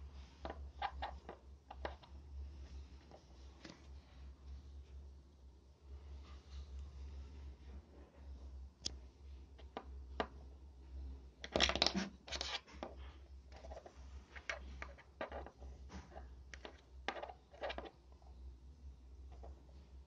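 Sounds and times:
plastic toy parts clicking and scraping: 0.4s - 2.1s, 11.4s - 15.6s, 16.5s - 18.0s.

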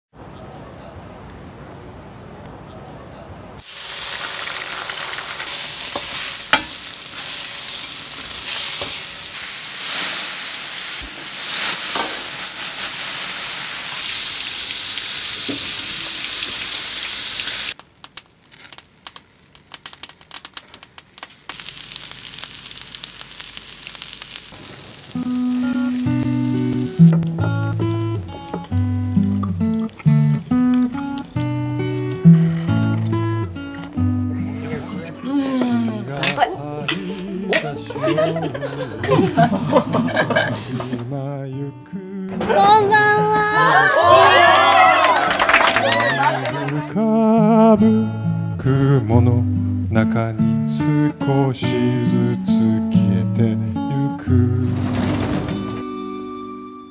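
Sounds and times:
food deep-frying in hot oil: 3.6s - 33.2s
oil crackling and popping: 3.6s - 34.0s, 54.7s - 55.8s
acoustic guitar music: 25.1s - 44.4s, 46.1s - 56.9s.

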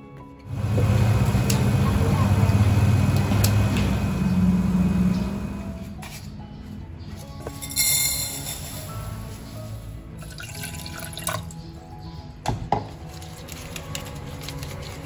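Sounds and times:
soft background music: 0.0s - 15.0s
liquid in a saucepan: 10.2s - 11.5s.

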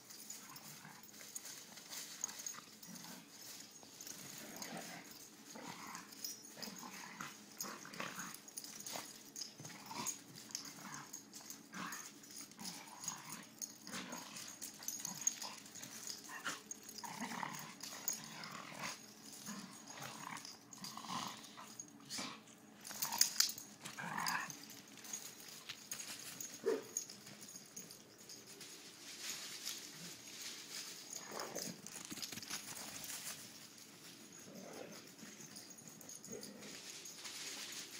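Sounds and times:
dogs scuffling: 0.0s - 37.9s
dogs growling and huffing: 0.1s - 28.4s, 31.0s - 33.1s, 34.2s - 37.1s.

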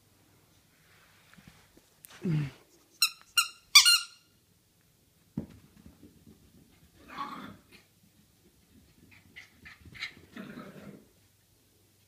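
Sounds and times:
puppy ball thump on carpet: 5.3s - 6.2s.

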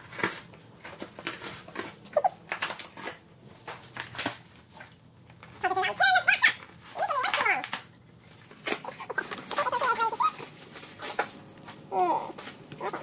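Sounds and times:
dog whining: 2.1s - 2.4s, 11.9s - 13.0s.

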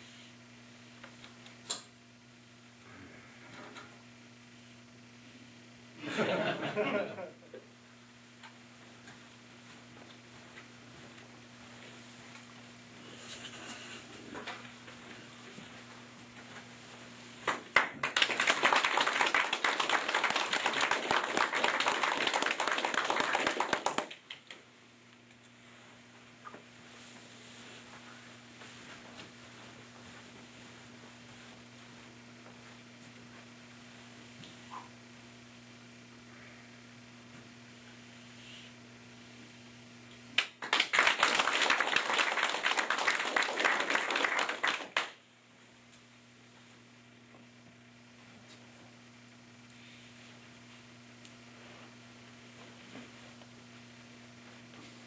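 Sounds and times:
audience clapping: 17.4s - 24.6s, 40.4s - 45.2s.

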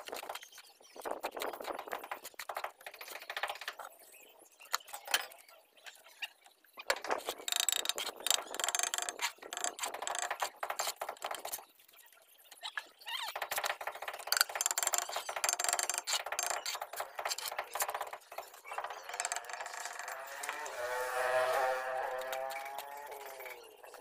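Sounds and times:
trowel scraping mortar on bricks: 16.0s - 19.5s.

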